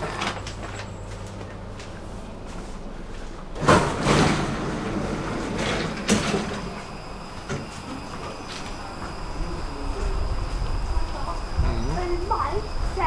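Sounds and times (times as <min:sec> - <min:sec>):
stopped train humming: 0:00.0 - 0:13.0
train doors opening with thud: 0:03.5 - 0:09.3.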